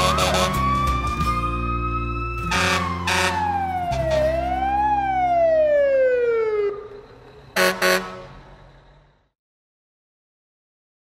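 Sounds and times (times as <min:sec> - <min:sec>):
fire truck siren wailing: 0:00.0 - 0:09.2
short horn blasts: 0:02.5 - 0:03.5, 0:07.6 - 0:08.4.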